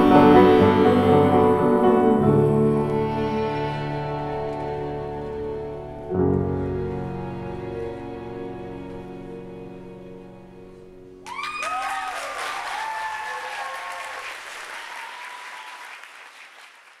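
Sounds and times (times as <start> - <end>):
held music chord: 0.0 - 11.2
audience applauding and cheering: 11.2 - 17.0.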